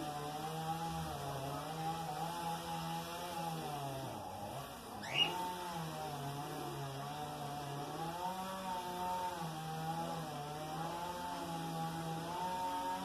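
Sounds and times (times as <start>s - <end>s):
small motor running: 0.0s - 13.0s
bird chirp: 5.0s - 5.4s.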